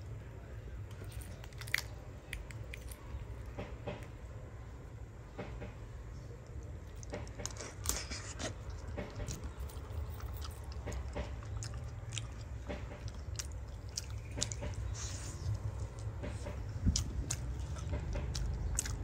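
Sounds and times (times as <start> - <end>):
crisp bites and chewing: 0.9 - 3.2, 6.9 - 19.0.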